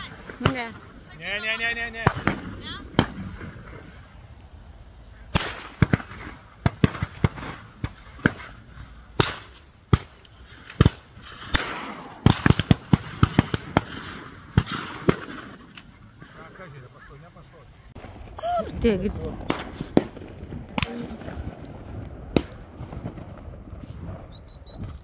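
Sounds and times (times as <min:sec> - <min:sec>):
shotgun shots with echo: 0:05.3 - 0:08.6, 0:09.2 - 0:16.5, 0:19.4 - 0:21.5.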